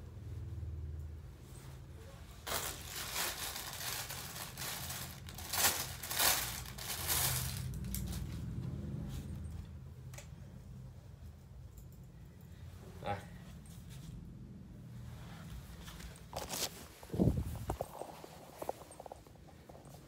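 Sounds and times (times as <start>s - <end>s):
plastic packaging crinkling: 2.4s - 8.2s.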